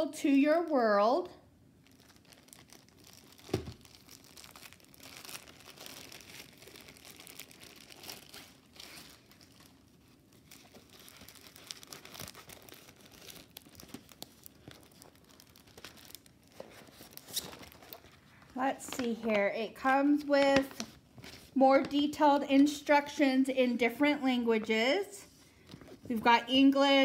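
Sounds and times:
plastic film crinkling: 1.7 - 22.2.

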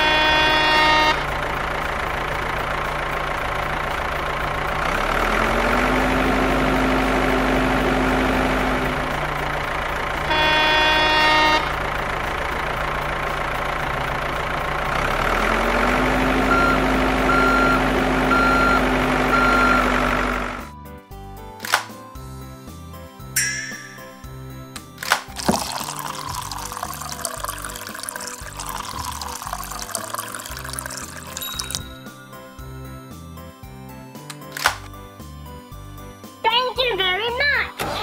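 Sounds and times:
horn honk: 0.0 - 1.6, 10.2 - 12.0
diesel engine revving: 0.0 - 20.8
reversing beeps: 16.5 - 20.0.

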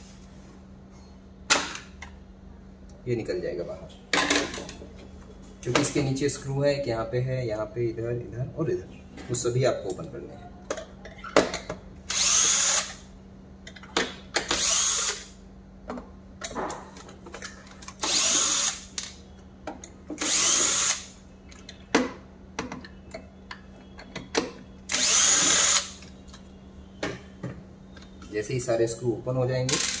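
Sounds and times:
cordless drill driving screws: 12.1 - 13.0, 14.6 - 15.3, 18.0 - 18.8, 20.2 - 21.1, 24.9 - 25.9.

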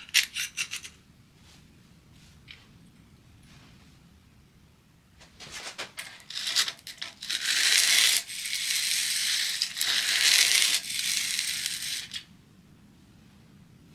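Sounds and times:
chisel scraping across sandpaper: 6.2 - 12.2.

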